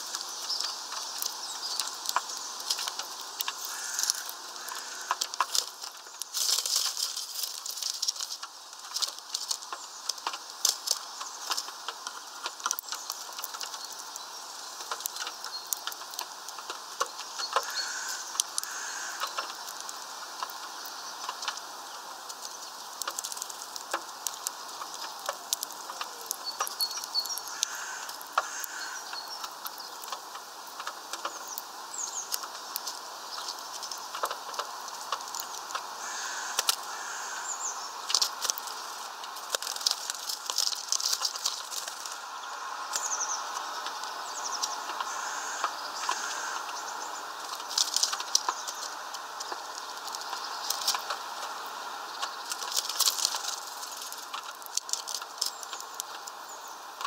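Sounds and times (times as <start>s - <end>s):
husks rattling on tray: 0.0s - 51.6s, 52.2s - 56.4s
beaks cracking seeds: 0.0s - 57.0s
high bird chirping: 41.9s - 47.5s.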